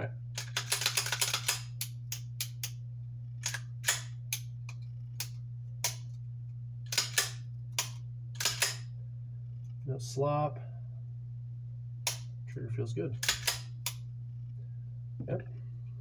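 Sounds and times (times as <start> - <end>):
pistol hammer and trigger clicks: 12.1 - 12.3, 13.2 - 14.0.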